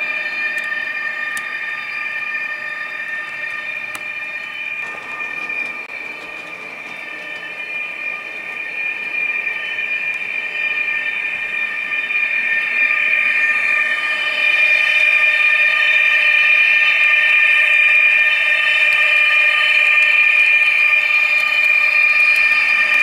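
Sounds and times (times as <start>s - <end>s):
model locomotive electric whine: 0.0s - 23.0s
model train rolling on track: 0.0s - 23.0s.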